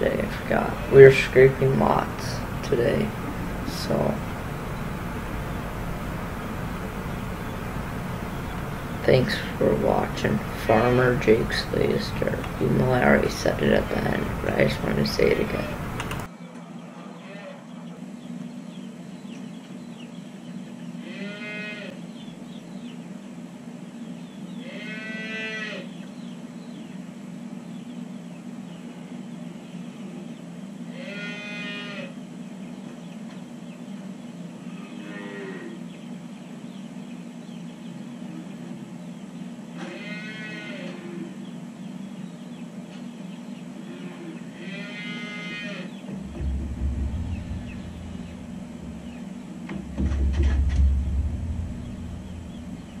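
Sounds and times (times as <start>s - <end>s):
low rumble: 0.0s - 16.3s, 46.1s - 53.0s
steady low hum: 0.0s - 21.2s, 21.9s - 24.8s, 25.8s - 31.0s, 45.9s - 53.0s
calves mooing: 17.0s - 17.6s, 21.0s - 22.0s, 24.6s - 25.9s, 30.9s - 32.2s, 34.6s - 35.8s, 39.8s - 41.4s, 43.8s - 46.4s.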